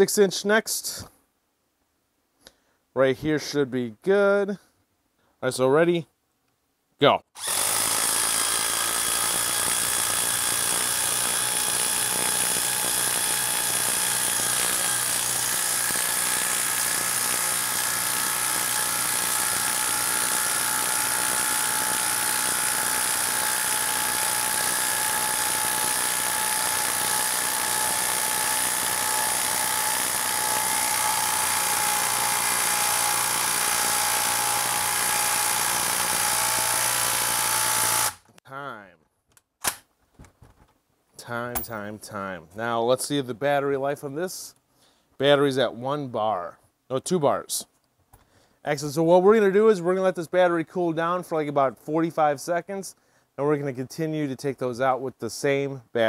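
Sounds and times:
impact driver hammering: 7.4 - 38.3.

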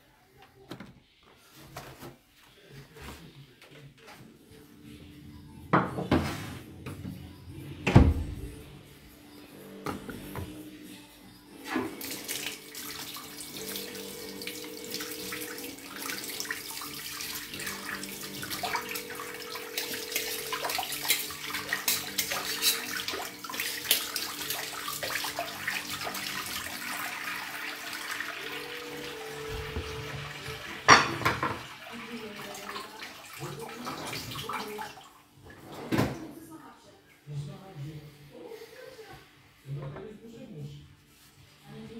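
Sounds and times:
tap water running into sink: 11.9 - 35.0
dishes clinking: 19.8 - 23.1, 29.5 - 31.7.

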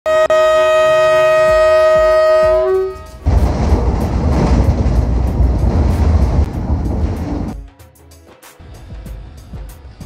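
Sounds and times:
locomotive horn: 0.0 - 3.3
train rumbling and clattering on track: 0.9 - 7.8, 8.6 - 10.0.

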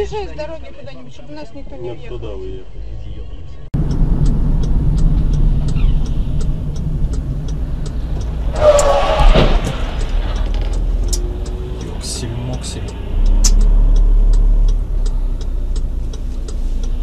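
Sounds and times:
car engine and road rumble: 0.0 - 17.0
faint regular ticking: 3.8 - 9.0, 9.7 - 17.0.

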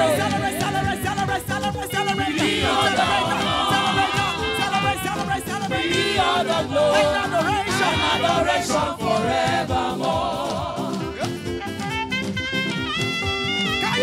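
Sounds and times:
women's choir singing: 0.0 - 11.2
backing band: 0.0 - 14.0.

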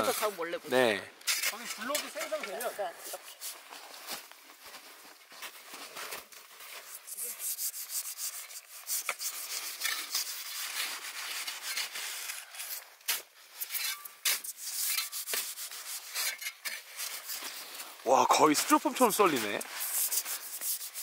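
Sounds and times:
saw cutting packed snow: 14.2 - 21.0.

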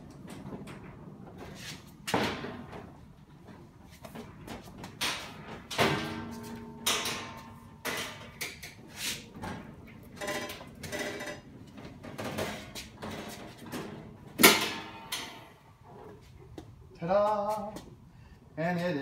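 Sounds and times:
metal knocks and rattles: 0.1 - 15.6
metal door clanking: 5.0 - 8.7, 9.3 - 15.6.

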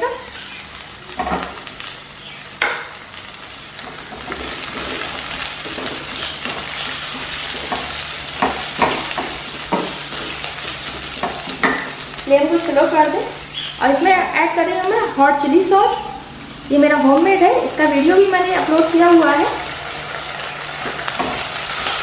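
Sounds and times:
vegetables sizzling in hot oil: 0.0 - 22.0
spatula stirring: 3.8 - 12.2
spatula knocking against pan: 5.7 - 12.0.

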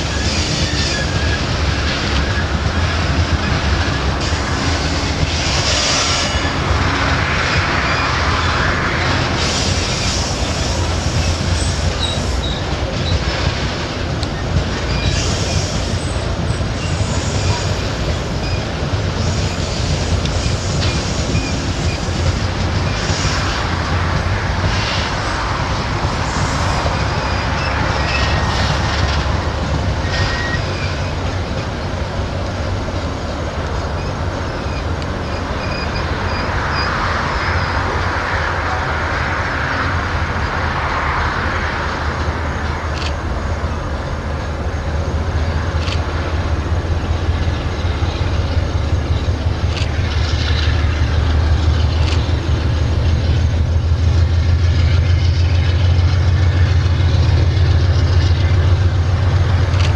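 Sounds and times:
wheel squeals: 0.0 - 6.7, 7.5 - 13.6, 14.2 - 23.6, 26.3 - 31.8, 33.8 - 37.9
train wheels rumbling on rails: 0.0 - 59.9.

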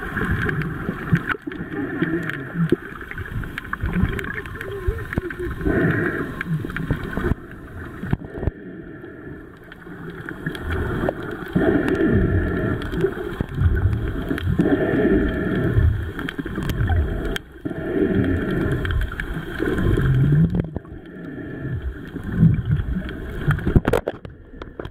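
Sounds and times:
muffled underwater water noise: 0.0 - 24.9
water sloshing and gurgling: 0.0 - 24.9.

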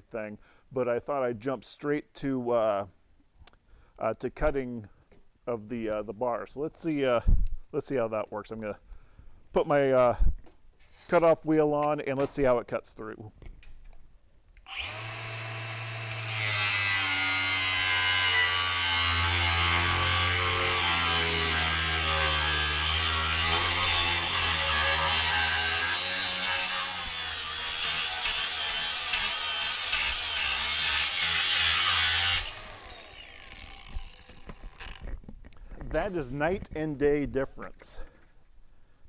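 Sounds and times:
grinder motor hum: 14.7 - 16.4, 31.8 - 35.1
grinder cutting steel: 14.7 - 35.1.

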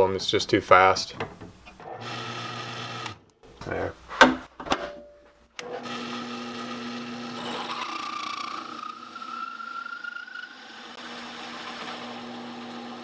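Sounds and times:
drill press running: 1.7 - 3.2, 5.6 - 9.7, 10.7 - 13.0
hole saw squealing in metal: 7.4 - 10.8.

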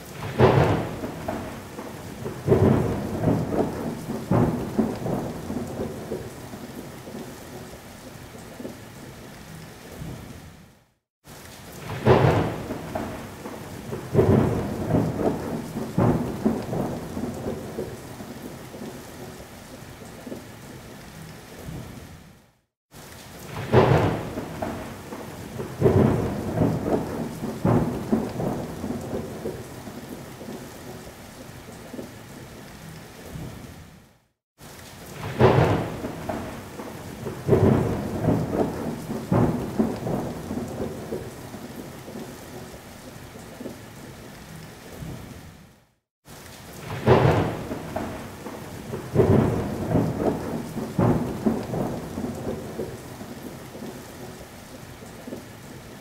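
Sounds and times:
steady rain: 0.0 - 56.0
thunder rumbling: 0.2 - 6.6, 11.8 - 19.3, 23.5 - 31.0, 35.2 - 42.2, 46.8 - 53.9.

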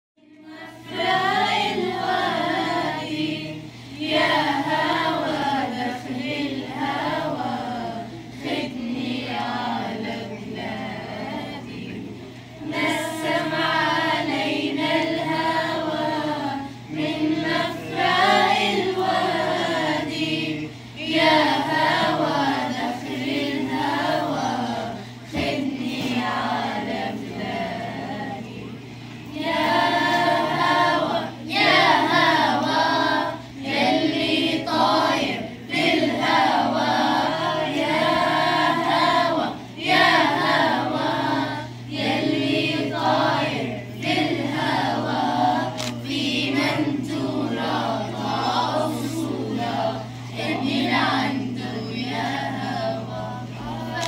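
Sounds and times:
children singing together: 0.2 - 54.0.

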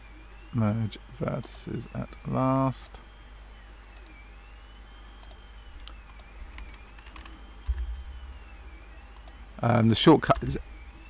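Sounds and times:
faint high whine: 0.0 - 11.0
low electrical hum: 0.0 - 11.0
computer mouse clicks: 5.2 - 7.9, 9.1 - 9.4.

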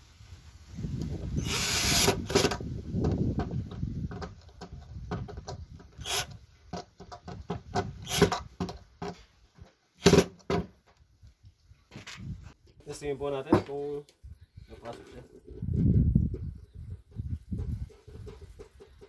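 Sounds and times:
cordless drill driving screws: 1.4 - 2.6, 6.0 - 6.4, 8.0 - 8.4.

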